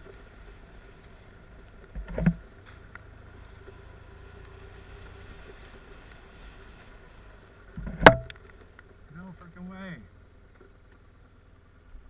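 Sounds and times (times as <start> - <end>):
faint ticks and rattles: 0.0 - 12.0
motorcycle engine running: 0.0 - 12.0.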